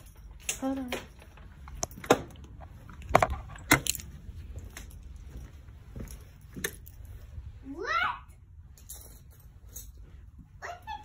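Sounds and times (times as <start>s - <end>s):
sharp clicks and clattering knocks: 0.0s - 4.1s.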